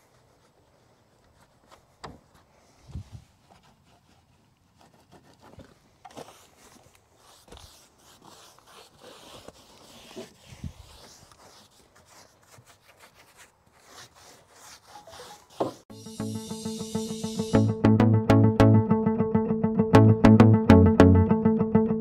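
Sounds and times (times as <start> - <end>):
hands scratching rough wood: 7.2 - 15.8.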